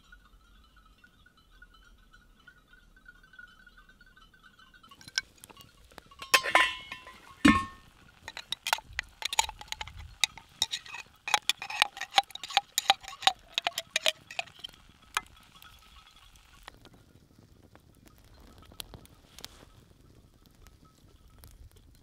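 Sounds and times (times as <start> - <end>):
utensil clinking in metal pot: 4.9 - 16.4.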